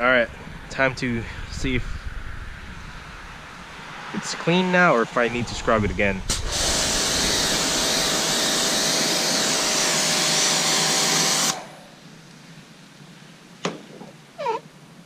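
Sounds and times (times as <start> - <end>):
motor hum: 5.4 - 12.1
pressure washer spray hissing: 6.3 - 11.8.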